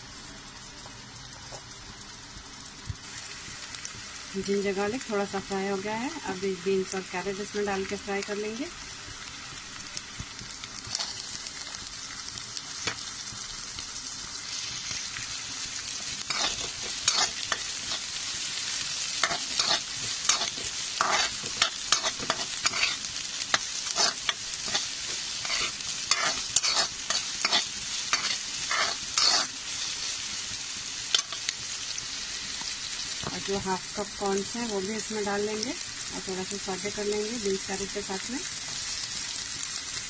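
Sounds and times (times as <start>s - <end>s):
vegetables sizzling in hot oil: 0.0s - 40.0s
metal ladle scraping a pan: 19.2s - 23.1s, 23.9s - 30.0s.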